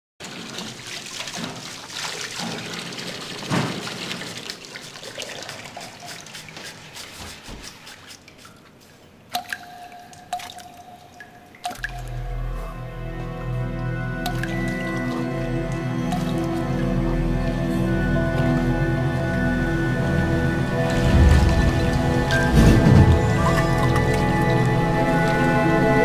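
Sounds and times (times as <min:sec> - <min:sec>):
water drops plinking: 0:09.3 - 0:13.1, 0:13.7 - 0:17.6.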